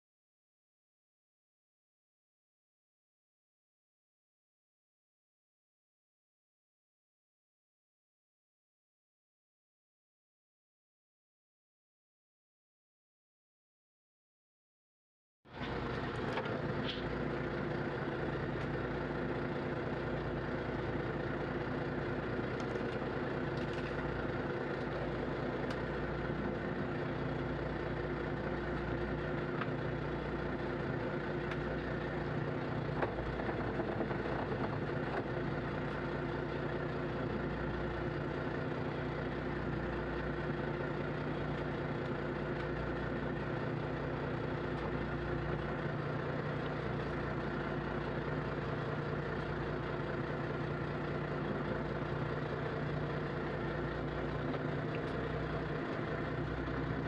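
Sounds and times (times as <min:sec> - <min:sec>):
boat engine droning: 0:15.5 - 0:57.0
faint engine knock: 0:32.8 - 0:36.0.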